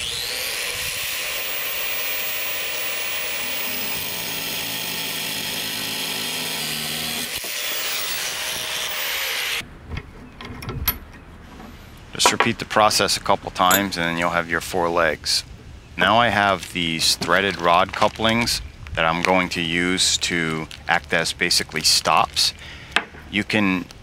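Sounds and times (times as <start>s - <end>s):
angle grinder cutting metal rod: 0.0s - 9.6s
light metal clicks: 13.7s - 14.0s.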